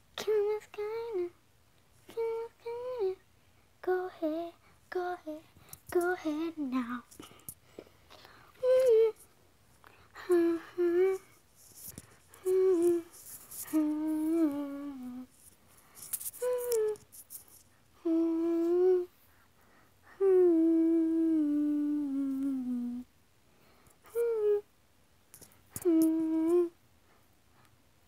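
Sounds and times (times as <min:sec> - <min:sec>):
girl humming: 0:02.1 - 0:03.2, 0:03.8 - 0:07.4, 0:08.5 - 0:09.3, 0:10.0 - 0:17.2, 0:18.0 - 0:19.2, 0:20.1 - 0:23.1, 0:24.0 - 0:24.7, 0:25.7 - 0:26.8.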